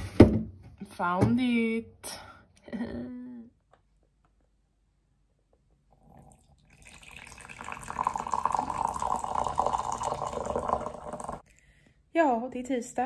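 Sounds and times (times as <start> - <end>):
liquid pouring into a mug: 5.9 - 11.5.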